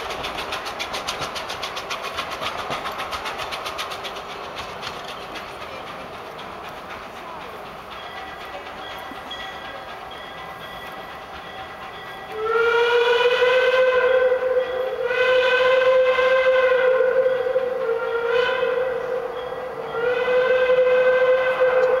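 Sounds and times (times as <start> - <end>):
train running noise: 0.0 - 22.0
steam locomotive whistle: 12.3 - 22.0.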